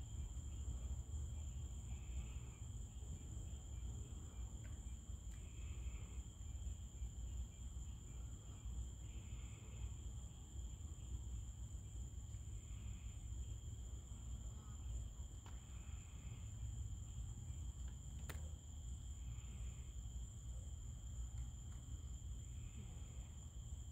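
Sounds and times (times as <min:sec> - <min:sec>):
crickets trilling: 0:00.0 - 0:23.9
lower insect trill: 0:00.0 - 0:23.9
short insect call: 0:00.0 - 0:23.9.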